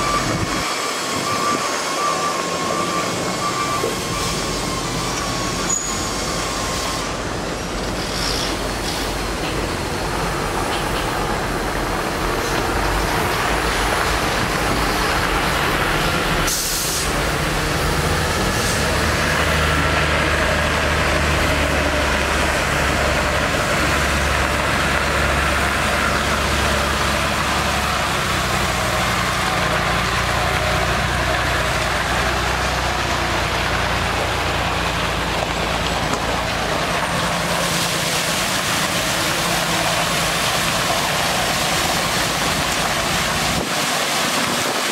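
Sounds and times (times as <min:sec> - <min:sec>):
diesel truck engine running: 0:00.0 - 0:44.9
water spraying: 0:00.0 - 0:44.9
burst of hiss: 0:16.5 - 0:17.2.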